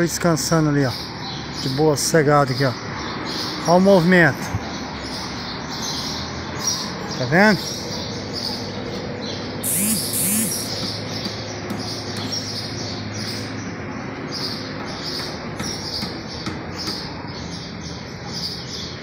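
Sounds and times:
bird chirping: 9.6s - 10.8s.

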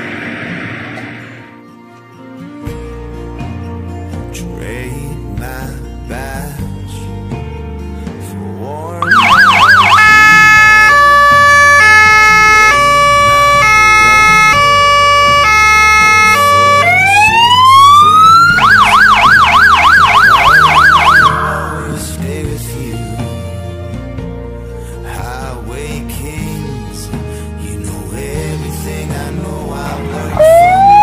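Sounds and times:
background music: 0.0s - 31.0s
fire engine siren: 9.0s - 22.0s, 30.4s - 31.0s.

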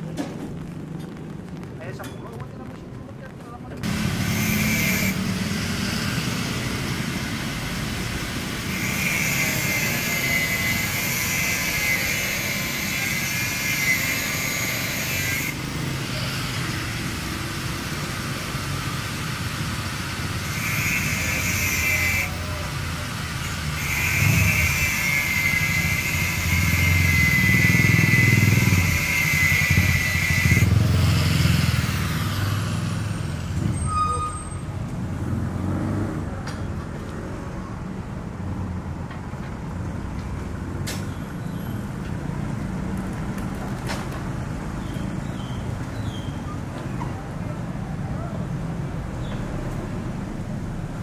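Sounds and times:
vehicle engine rumble: 0.0s - 4.2s
tyre hiss on wet street: 0.0s - 36.0s.

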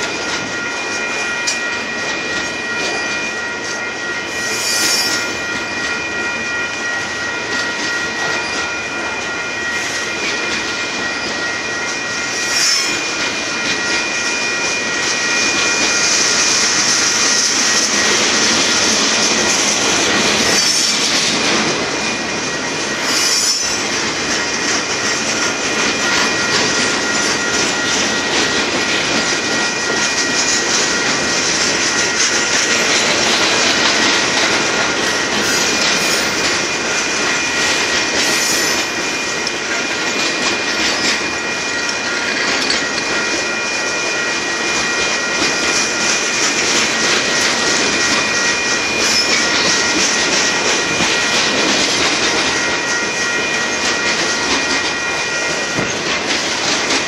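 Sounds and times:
crossing bell ringing: 0.0s - 57.0s
train wheels rumbling on rail: 0.0s - 57.0s
high wheel squeals: 4.1s - 5.8s, 12.0s - 19.8s, 22.9s - 23.8s.

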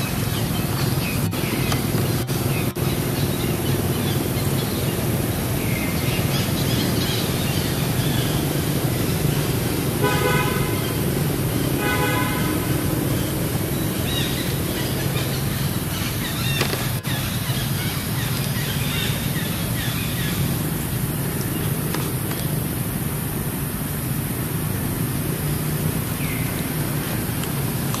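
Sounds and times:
vehicle horn toots: 9.8s - 13.7s.

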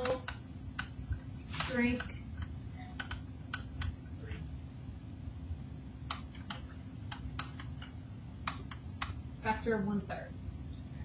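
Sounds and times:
steady low hum: 0.0s - 11.0s
stylus tapping on a screen: 1.6s - 4.0s, 6.0s - 9.2s.

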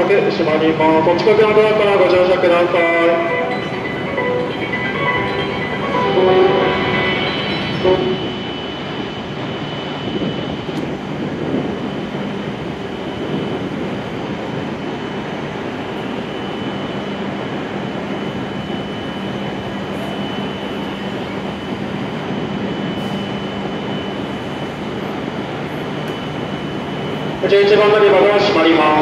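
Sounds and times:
train equipment hum and hiss: 0.0s - 29.0s
thin high steady tone: 1.8s - 10.7s.

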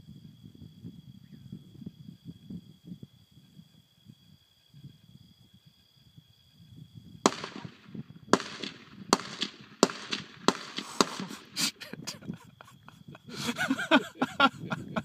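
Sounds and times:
rifle shots: 7.3s - 11.7s.

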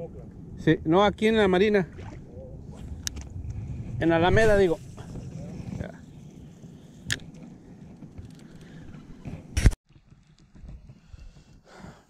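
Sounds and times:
low rumbling: 0.0s - 7.9s.

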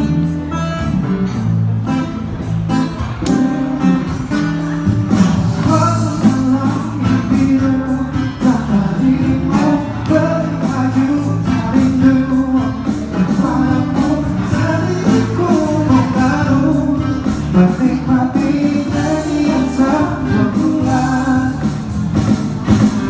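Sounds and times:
acoustic guitar: 0.0s - 23.0s
man singing into a microphone: 5.6s - 22.0s.

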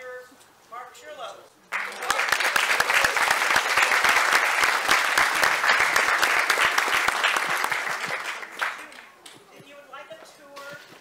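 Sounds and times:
audience applauding: 1.7s - 9.2s.

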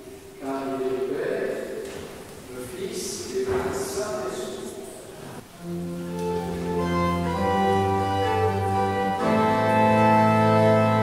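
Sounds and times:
church organ chords: 5.6s - 11.0s.

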